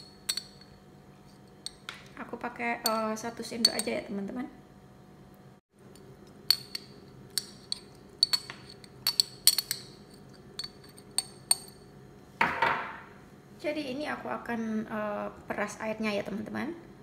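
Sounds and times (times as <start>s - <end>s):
metal spoon clinking on glass jar: 0.0s - 0.8s, 2.8s - 4.0s, 6.0s - 11.8s.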